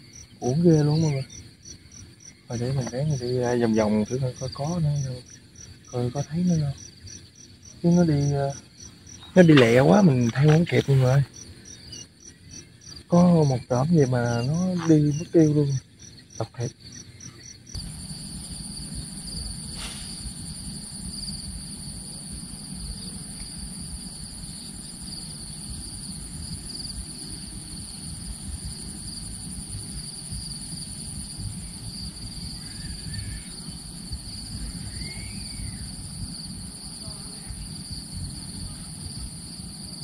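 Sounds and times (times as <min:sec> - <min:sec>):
high-pitched insect chorus: 0:00.0 - 0:40.0
low rumble: 0:17.8 - 0:39.7.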